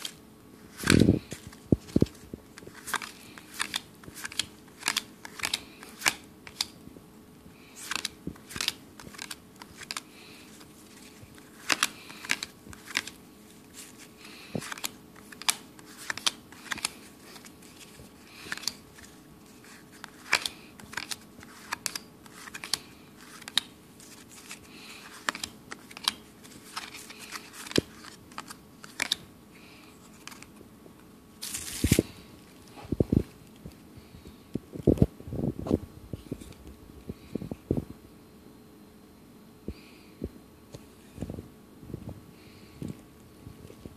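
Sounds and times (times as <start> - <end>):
cards flicked by hand: 0.0 - 6.8, 7.8 - 10.0, 11.4 - 13.2, 14.6 - 18.8
cards rustling: 0.0 - 6.8, 7.6 - 33.8.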